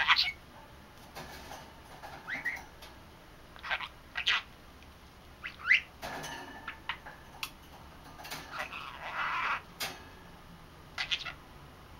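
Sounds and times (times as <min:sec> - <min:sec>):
budgerigar chattering: 0:03.6 - 0:04.5, 0:05.4 - 0:05.9, 0:08.5 - 0:09.7, 0:11.0 - 0:11.4
budgerigar rising chirp: 0:05.4 - 0:05.9.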